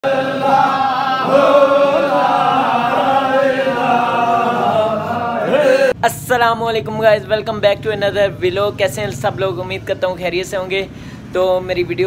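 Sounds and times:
men chanting together: 0:00.0 - 0:06.0.

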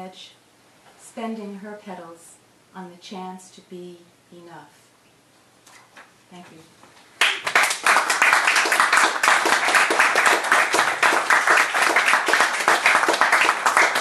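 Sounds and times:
audience applauding: 0:07.2 - 0:14.0.

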